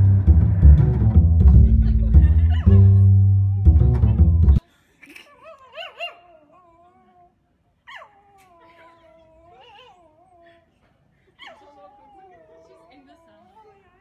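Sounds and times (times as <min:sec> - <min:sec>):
small dog whining: 0:07.9 - 0:10.7.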